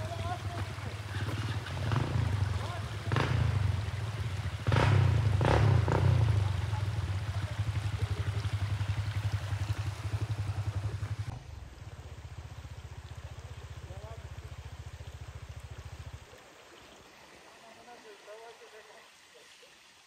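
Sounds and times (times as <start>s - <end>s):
dirt bike engine revving: 0.0s - 11.3s.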